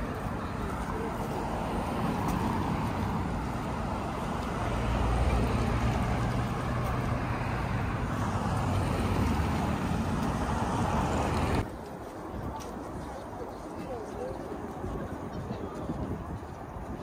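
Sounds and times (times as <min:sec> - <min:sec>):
passing cars rumbling: 0:00.0 - 0:11.7.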